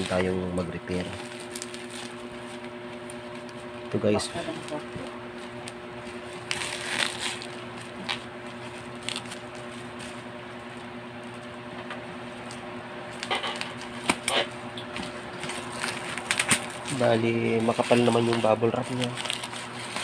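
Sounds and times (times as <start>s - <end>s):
bubble wrap crinkling: 0.0s - 11.5s, 12.2s - 14.3s, 14.9s - 20.0s.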